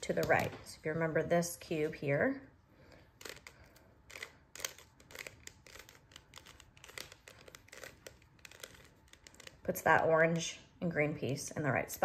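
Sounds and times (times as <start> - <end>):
plastic cube clicking: 3.2 - 9.6.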